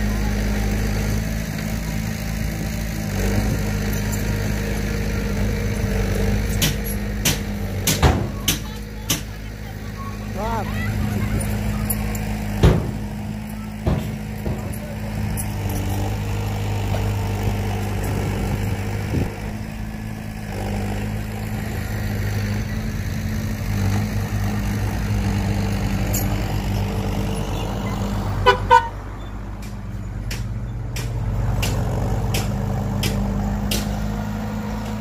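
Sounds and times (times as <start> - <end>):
heavy diesel machinery running: 0.0 - 35.0
horn toots: 27.4 - 29.1.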